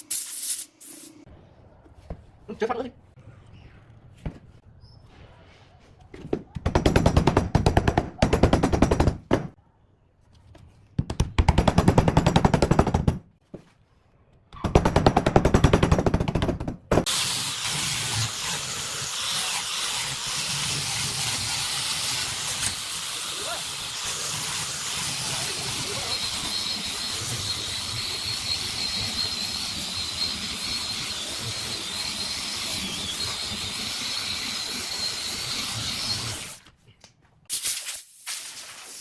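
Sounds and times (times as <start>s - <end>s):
angle grinder sanding wood: 17.1s - 36.6s.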